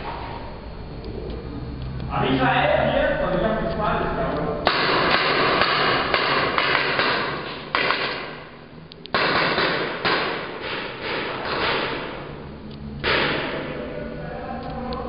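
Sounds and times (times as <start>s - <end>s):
paintball markers firing: 4.7s - 8.4s, 9.0s - 12.2s, 13.0s - 13.7s.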